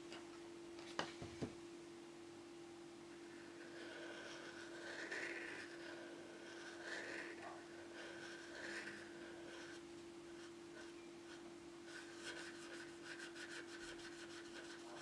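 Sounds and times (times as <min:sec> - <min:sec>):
steady low hum: 0:00.0 - 0:15.0
marker scratching on wood: 0:03.6 - 0:09.8, 0:10.4 - 0:15.0.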